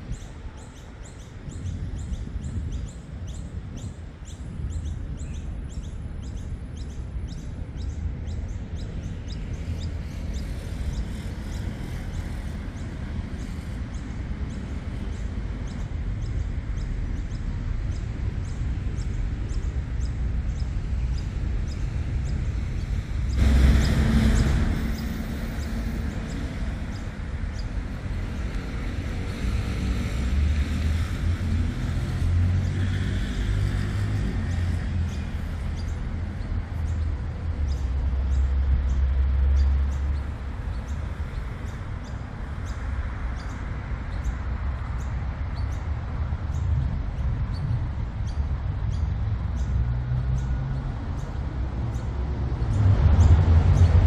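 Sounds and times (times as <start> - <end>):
road traffic rumble: 0.0 - 54.0
vehicle rushing past: 23.4 - 27.4, 47.4 - 54.0
bird chirping: 34.0 - 54.0.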